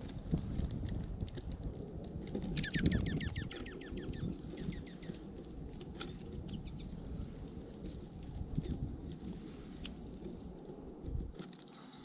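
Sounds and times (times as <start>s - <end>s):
wind rumble on microphone: 0.0s - 11.6s
songbird twittering chirps: 2.5s - 5.2s, 6.0s - 6.9s.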